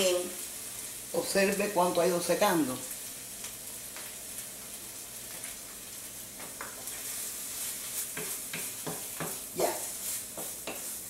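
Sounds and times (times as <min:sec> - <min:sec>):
meat sizzling in a frying pan: 0:00.0 - 0:11.0
wooden spatula scraping a pan: 0:06.4 - 0:11.0.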